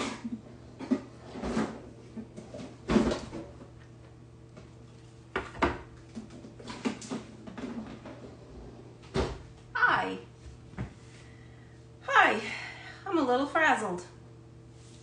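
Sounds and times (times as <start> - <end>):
cupboards and drawers clattering: 0.0 - 3.7, 5.4 - 9.5.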